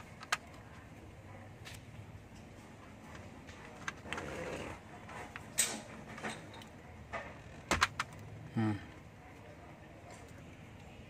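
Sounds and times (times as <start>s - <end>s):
plastic clicks and rustling: 0.0s - 0.9s, 1.6s - 8.4s.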